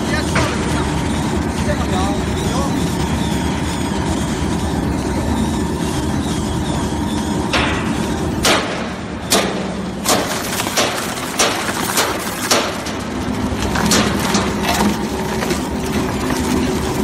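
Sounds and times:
machine drive hum: 0:00.0 - 0:17.0
shredder cracking and banging: 0:07.6 - 0:17.0.

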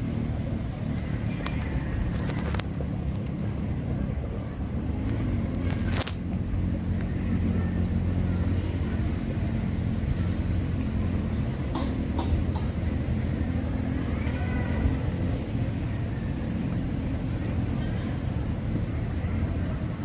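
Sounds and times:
low engine hum: 0:00.0 - 0:20.0.

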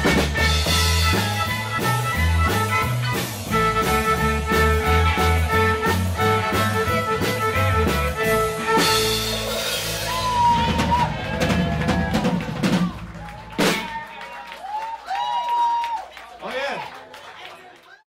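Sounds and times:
live rock band playing: 0:00.0 - 0:14.3
crowd shouting and cheering: 0:00.0 - 0:18.0.

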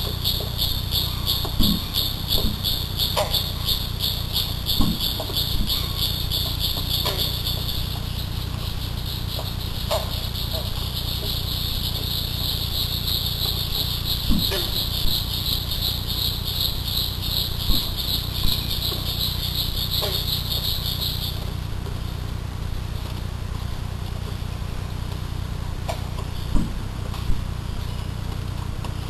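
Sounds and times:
insect chorus trilling: 0:00.0 - 0:22.3
constant low hum: 0:00.0 - 0:29.0.

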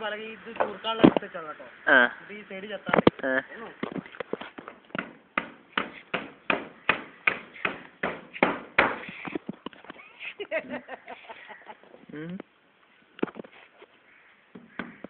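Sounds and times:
hammer driving nails into wood: 0:05.0 - 0:09.1.

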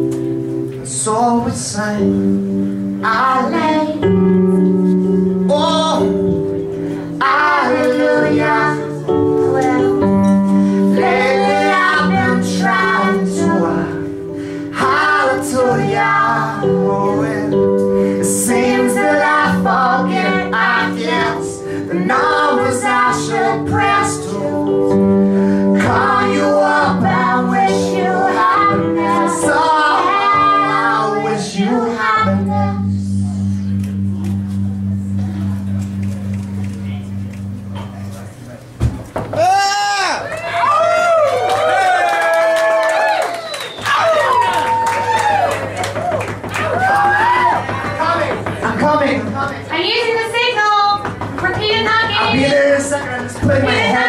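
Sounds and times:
instrumental held chords: 0:00.0 - 0:39.7
voices singing: 0:07.1 - 0:33.2, 0:51.0 - 0:54.0.

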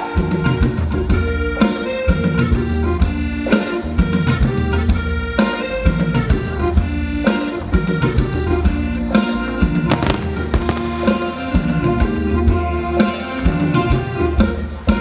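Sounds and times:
steady drum beat: 0:09.9 - 0:11.3
live band instrumental music: 0:10.0 - 0:11.4.

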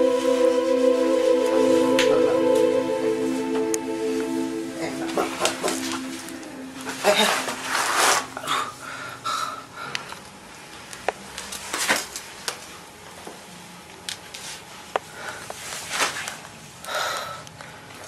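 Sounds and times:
microphone hiss: 0:00.0 - 0:09.8.

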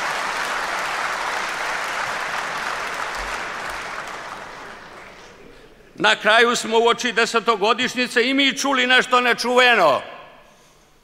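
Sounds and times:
audience applause: 0:00.0 - 0:05.6.

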